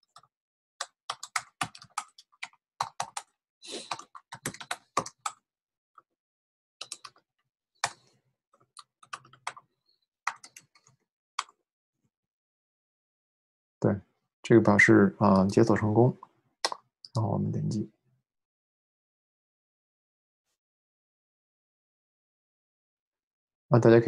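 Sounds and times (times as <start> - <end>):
computer keyboard typing: 0.0 - 5.4, 6.8 - 7.2, 7.8 - 8.1, 8.8 - 9.6, 10.3 - 11.6.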